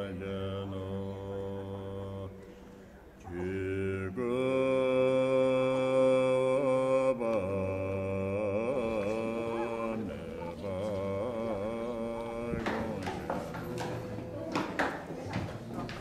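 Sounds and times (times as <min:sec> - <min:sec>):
voice chanting long notes: 0:03.2 - 0:14.6.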